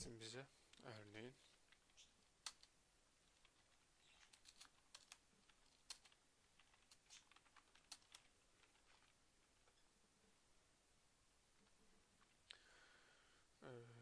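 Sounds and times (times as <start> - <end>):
computer keyboard typing: 1.4 - 9.1.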